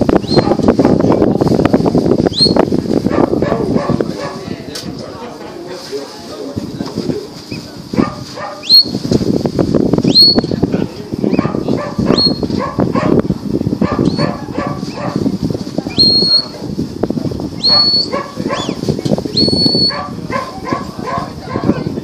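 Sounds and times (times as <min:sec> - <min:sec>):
wind rumble on microphone: 0:00.0 - 0:22.0
shepherd's whistle: 0:00.2 - 0:00.6, 0:02.3 - 0:02.6, 0:08.6 - 0:09.0, 0:10.0 - 0:10.5, 0:12.1 - 0:12.5, 0:14.0 - 0:14.3, 0:15.9 - 0:16.5, 0:17.6 - 0:18.8, 0:19.4 - 0:20.0
dog whining and yipping: 0:13.9 - 0:15.2, 0:17.6 - 0:18.8, 0:19.7 - 0:20.7.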